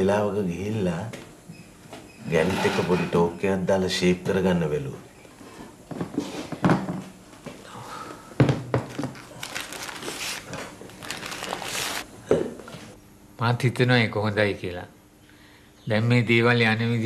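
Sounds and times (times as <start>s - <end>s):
rustling: 9.1s - 12.1s.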